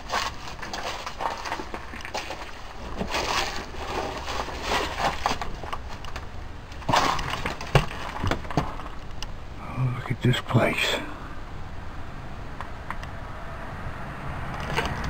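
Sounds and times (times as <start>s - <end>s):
clothing rustling: 0.0s - 9.2s
footsteps crunching over debris: 0.0s - 9.2s.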